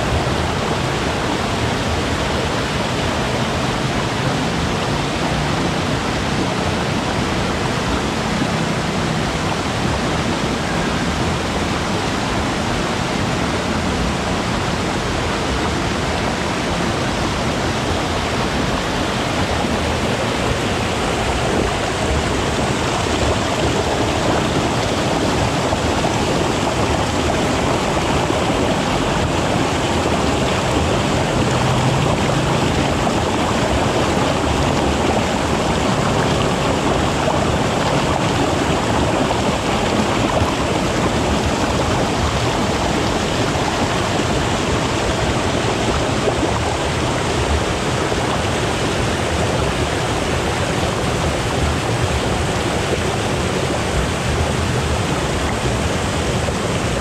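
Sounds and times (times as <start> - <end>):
waterfall and river rushing: 0.0 - 57.0.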